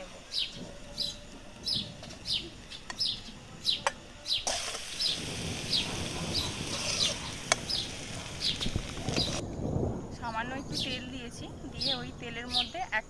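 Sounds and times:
bird chirping: 0.0 - 13.0
steady hiss: 0.0 - 13.0.

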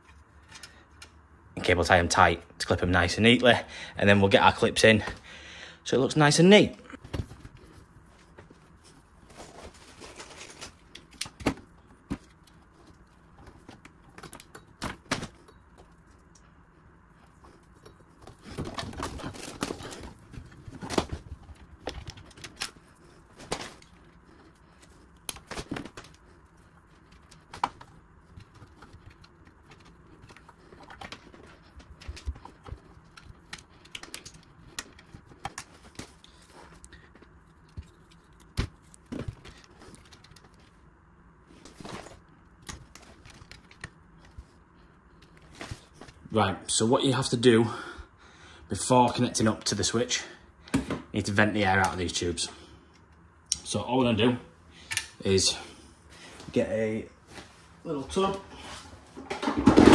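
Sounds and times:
plastic tubes rustling: 6.9 - 46.4, 57.2 - 59.9.

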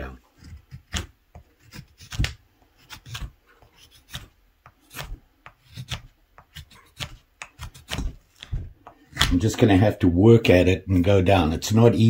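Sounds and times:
knife scraping wood: 0.0 - 9.4.

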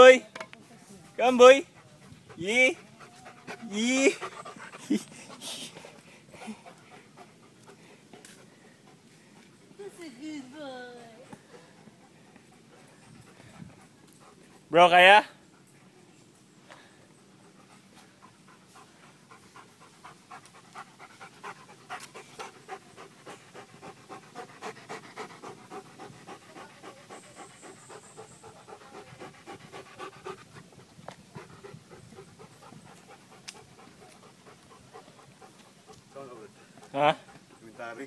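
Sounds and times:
quick rhythmic panting: 1.4 - 9.6, 17.2 - 38.0.

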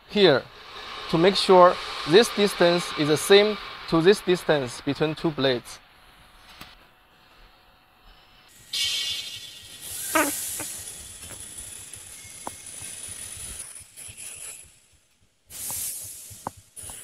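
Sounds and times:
steady hiss: 0.0 - 6.1, 15.5 - 17.0.

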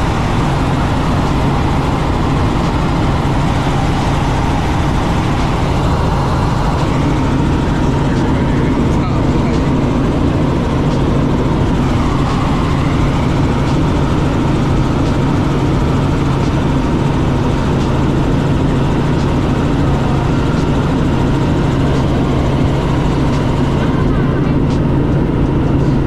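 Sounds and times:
helicopter drone from inside cabin: 0.0 - 26.0.

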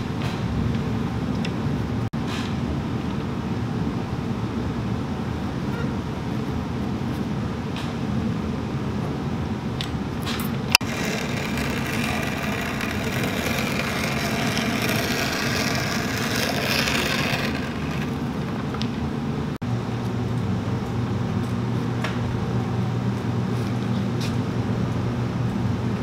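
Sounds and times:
shoe repair machine motor hum: 10.8 - 18.9.

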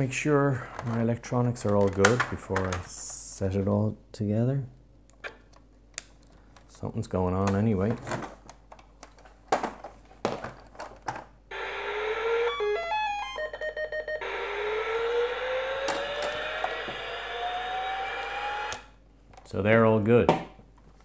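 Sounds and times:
rising electronic tone: 11.5 - 19.0
slow rising electronic whine: 11.5 - 19.0.

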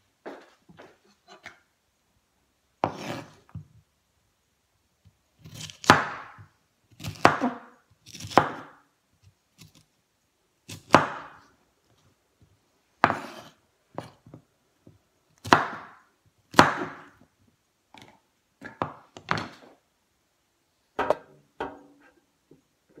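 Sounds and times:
knife chopping on wooden board: 2.8 - 3.4, 5.8 - 6.4, 7.0 - 8.8, 10.7 - 11.4, 13.0 - 14.1, 15.4 - 17.1.

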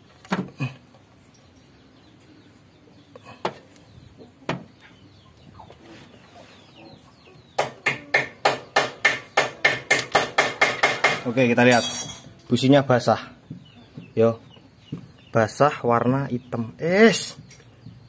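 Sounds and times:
metal hand tools clinking: 11.7 - 12.4.

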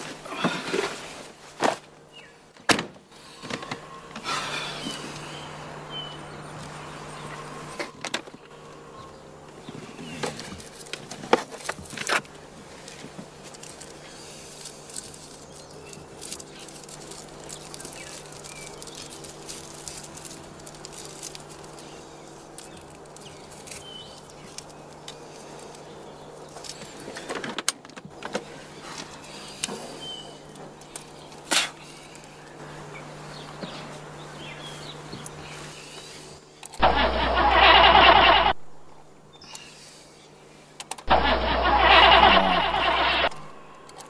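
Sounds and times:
steady low hum: 0.0 - 27.2, 28.1 - 44.0
birds chirping: 3.2 - 10.6, 13.9 - 27.2, 28.4 - 44.0
clicks and rustles of small object: 10.2 - 29.8.

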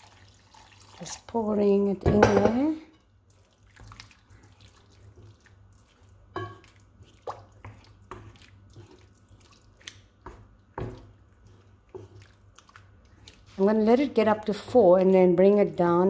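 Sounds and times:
wet sloshing and scraping: 3.1 - 15.9.

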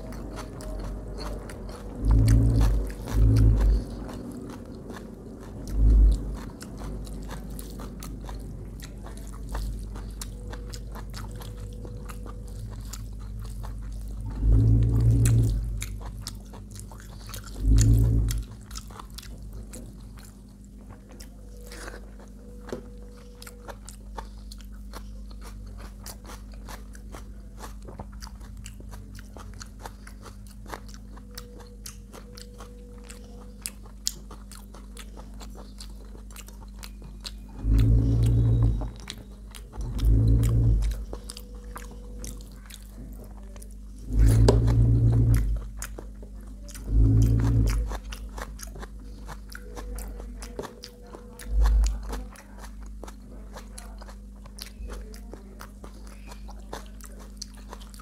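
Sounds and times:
loud low dull rumbles: 0.0 - 10.2, 14.0 - 16.3, 17.4 - 20.0, 37.5 - 42.5, 43.9 - 45.9, 46.7 - 48.2
chewing and biting food: 0.0 - 58.0
steady low hum: 0.0 - 58.0.

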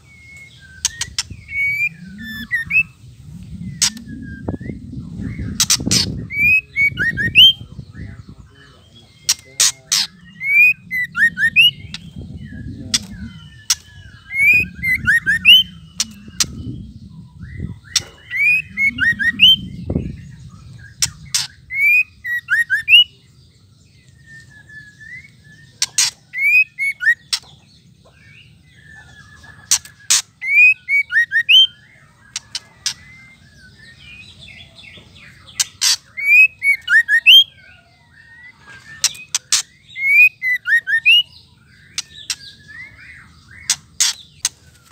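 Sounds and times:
bird high whistled notes: 0.0 - 7.6, 10.1 - 23.1
low rumble: 0.0 - 9.2, 9.8 - 22.2
bird dry clicking calls: 9.2 - 11.0, 20.8 - 22.6, 25.8 - 28.2, 28.9 - 31.5, 32.2 - 33.2, 34.9 - 37.4, 38.6 - 41.2, 41.8 - 44.9.

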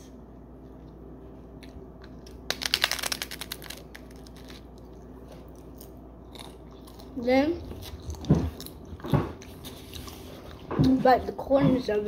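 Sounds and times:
teeth crunching crisp taco shell: 2.2 - 4.9.

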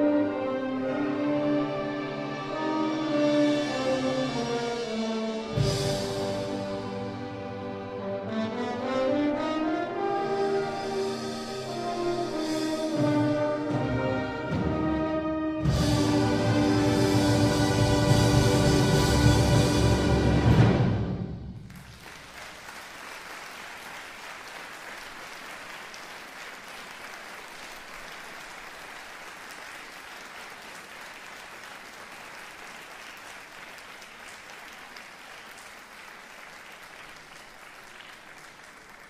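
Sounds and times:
audience applauding: 21.6 - 39.0.

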